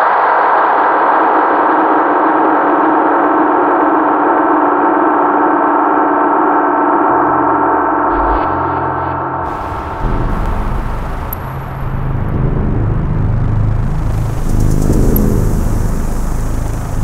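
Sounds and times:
low pulsing drone: 7.0 - 17.0
gong-like metallic ringing: 7.1 - 17.0.

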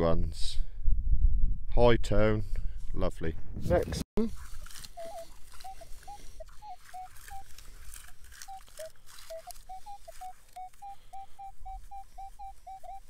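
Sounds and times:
dry stubble crackling: 4.2 - 13.0
metal detector high beeps: 4.8 - 7.8, 8.4 - 13.0.

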